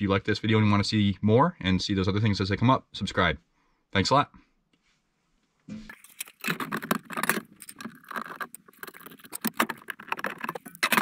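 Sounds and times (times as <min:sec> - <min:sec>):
metal panel cover rattling and scraping: 0:05.9 - 0:11.0.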